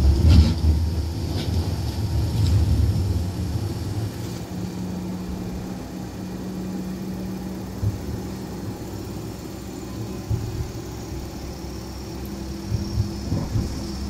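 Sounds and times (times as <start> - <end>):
steady low hum: 0.0 - 14.0
tram rumbling on rails: 0.0 - 14.0.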